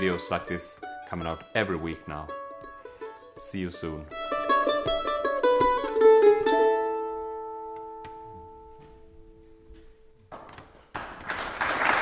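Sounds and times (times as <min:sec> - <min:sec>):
mandolins ringing chord: 0:00.0 - 0:09.6
audience applause: 0:10.9 - 0:12.0.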